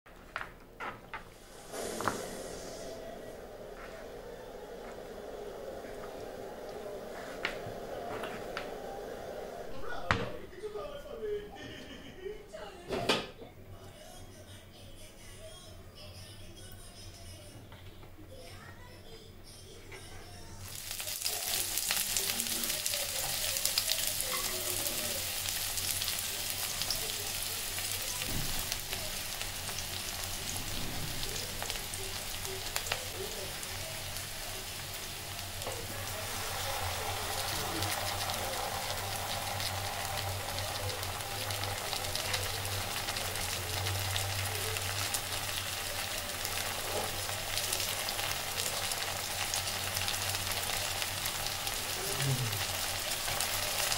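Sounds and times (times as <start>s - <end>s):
hot oil sizzling in a pan: 1.4s - 2.9s, 20.6s - 53.9s.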